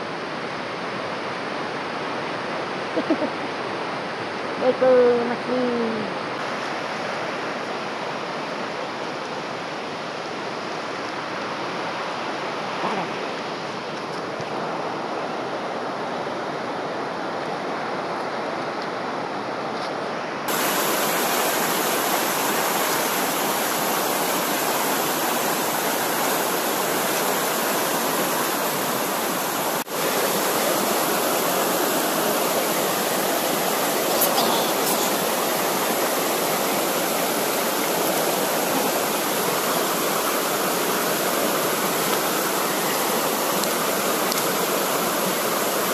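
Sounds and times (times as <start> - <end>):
river water rushing over stones: 0.0 - 45.9.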